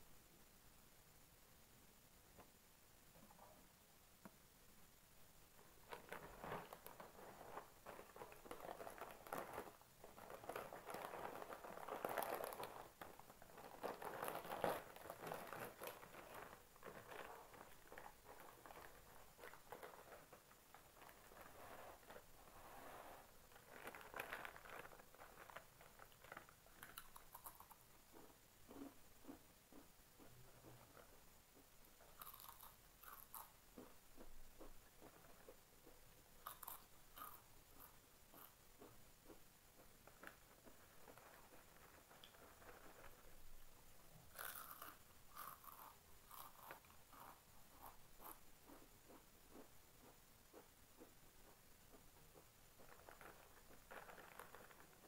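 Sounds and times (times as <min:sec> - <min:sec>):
foil chip packet crinkling: 0:05.8 - 0:22.2, 0:23.5 - 0:27.4, 0:52.8 - 0:55.0.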